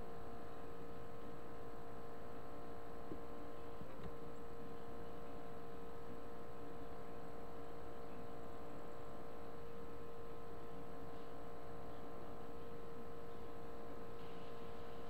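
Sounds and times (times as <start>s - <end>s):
steady electrical hum with tones: 0.0s - 15.0s
faint hiss: 14.0s - 15.0s.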